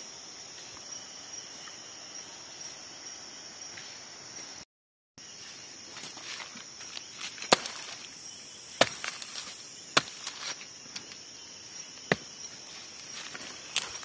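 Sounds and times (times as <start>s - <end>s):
insects droning: 0.0s - 14.0s
blade chopping into fruit: 7.4s - 8.0s, 8.8s - 10.6s.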